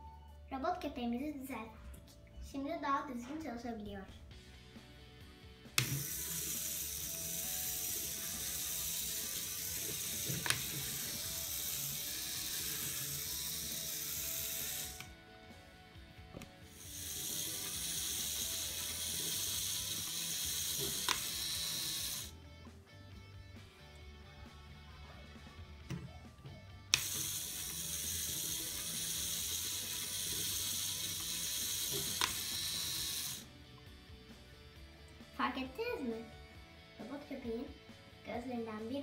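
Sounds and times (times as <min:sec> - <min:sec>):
toy motor whirring with gear clatter: 0:05.7 - 0:15.2, 0:16.7 - 0:22.4, 0:26.9 - 0:33.5.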